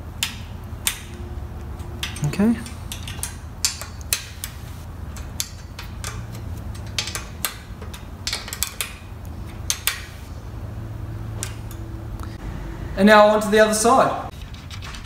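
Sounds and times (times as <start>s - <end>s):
steady low hum: 0.0s - 15.0s
spanner clicking on bolt: 0.2s - 1.2s, 1.8s - 10.2s.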